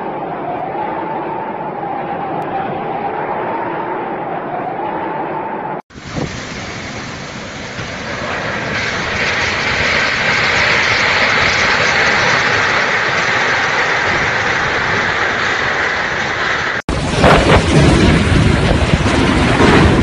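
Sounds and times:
storm wind blowing hard: 5.9s - 20.0s.

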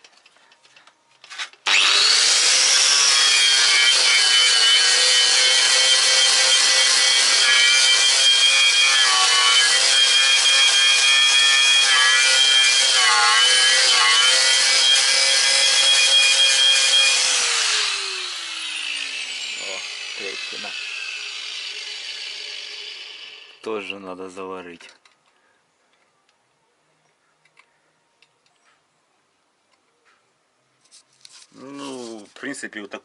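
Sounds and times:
angle grinder grinding metal: 1.3s - 24.1s.

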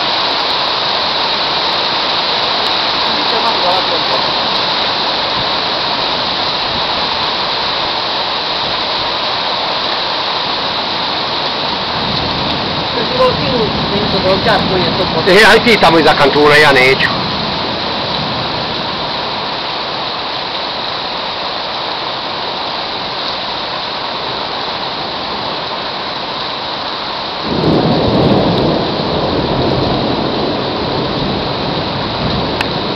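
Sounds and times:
heavy rain falling: 0.0s - 32.9s
thunder rumbling: 1.4s - 8.0s, 10.8s - 19.6s, 27.4s - 32.9s.

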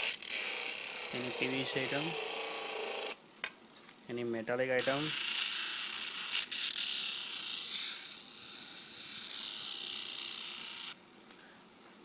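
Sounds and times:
grinding wheel whine: 0.0s - 3.2s.

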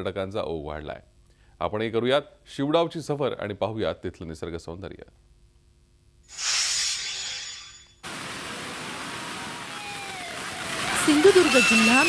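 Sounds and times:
short high hiss: 6.3s - 8.2s
waterfall rushing: 8.0s - 12.0s.

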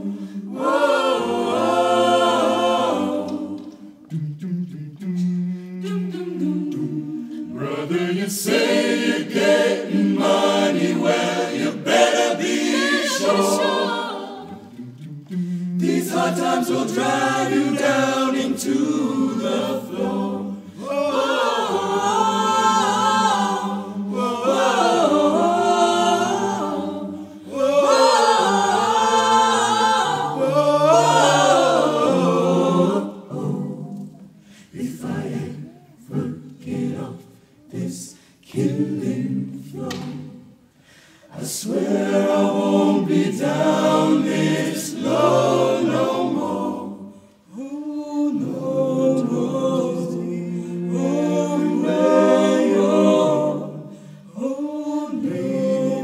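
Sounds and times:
a cappella choir singing: 0.0s - 56.0s.

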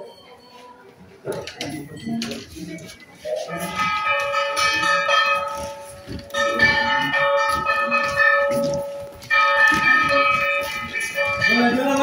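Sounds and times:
temple bell clanging: 3.3s - 12.0s.

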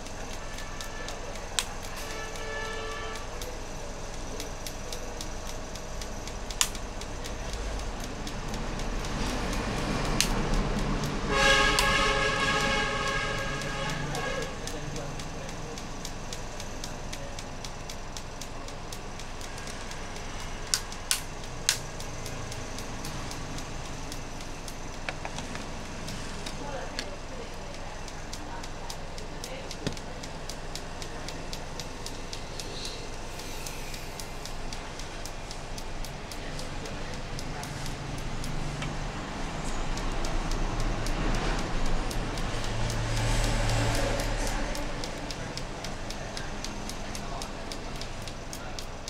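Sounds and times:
faint fast regular ticking: 0.0s - 49.0s
sharp clicks of parts handled: 0.0s - 49.0s
steady background noise: 0.0s - 49.0s.

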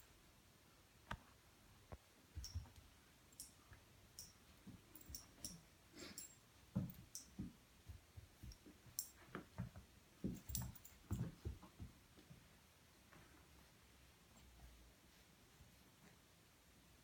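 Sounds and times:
soft thumps and bumps: 6.7s - 12.5s.

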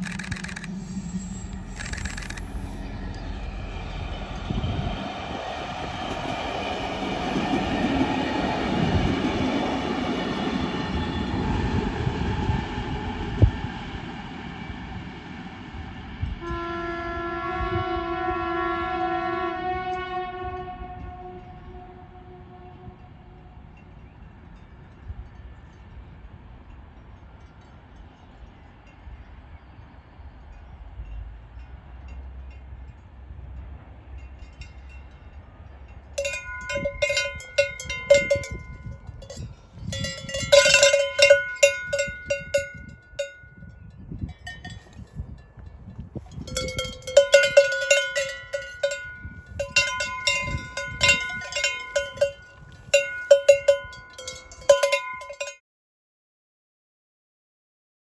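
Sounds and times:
cowbells clanging: 36.1s - 55.6s.

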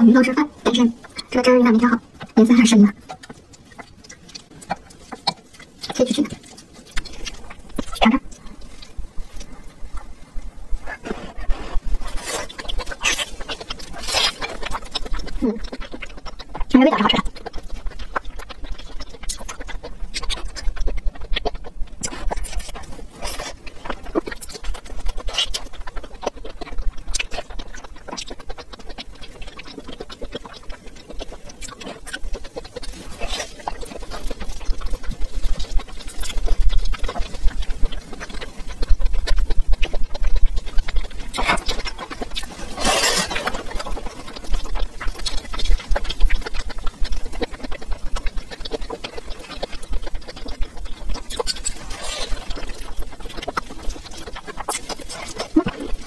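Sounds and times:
person chewing food: 0.0s - 56.0s
rustling: 3.1s - 15.8s, 39.2s - 56.0s.

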